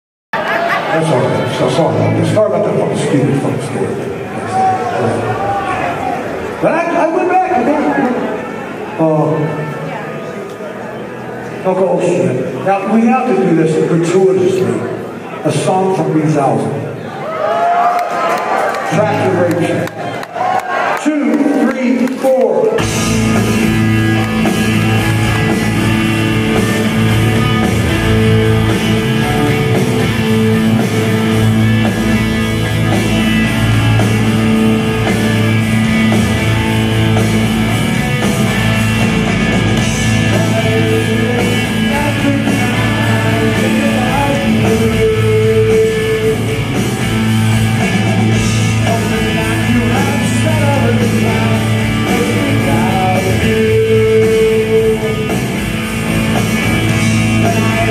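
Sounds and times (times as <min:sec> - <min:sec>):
rock band playing: 0:00.4 - 0:16.7, 0:18.3 - 0:20.6, 0:21.5 - 0:57.9
person singing: 0:40.0 - 0:46.9, 0:48.6 - 0:55.7, 0:57.0 - 0:57.9.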